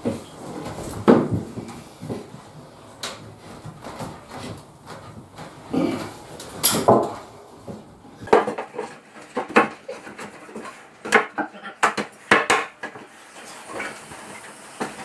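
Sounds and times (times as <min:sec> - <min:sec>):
wooden board and fittings knocking: 0:06.7 - 0:13.1.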